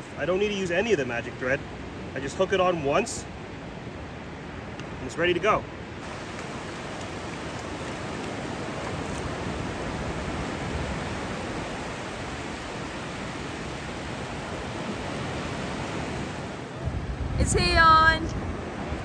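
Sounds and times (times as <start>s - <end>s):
ocean surf rushing on shore: 5.3s - 19.0s.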